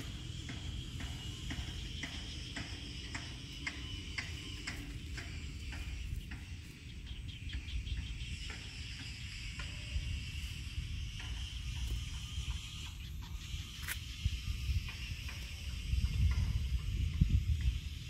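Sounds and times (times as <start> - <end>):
insects buzzing and ticking: 0.0 - 18.0.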